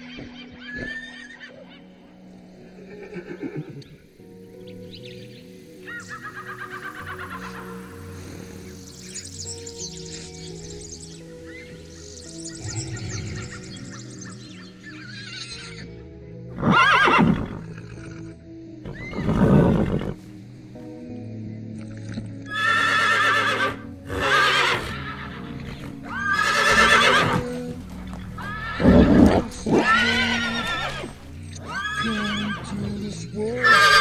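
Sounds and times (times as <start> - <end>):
horses whinnying: 0.0 - 1.9, 2.7 - 4.0, 5.8 - 8.7, 14.8 - 15.9, 16.5 - 20.2, 22.4 - 34.0
background music: 0.0 - 34.0.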